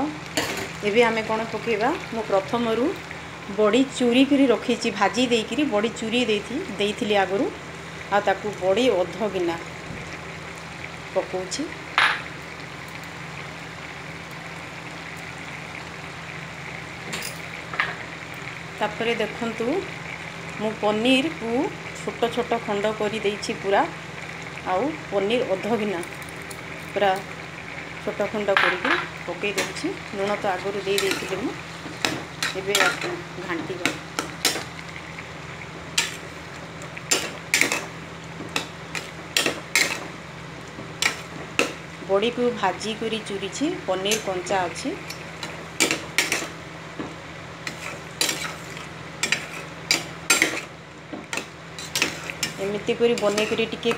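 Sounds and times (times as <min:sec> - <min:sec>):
curry simmering in a pan: 0:00.0 - 0:53.9
metal spatula scraping a pot: 0:47.6 - 0:50.7, 0:51.3 - 0:53.9.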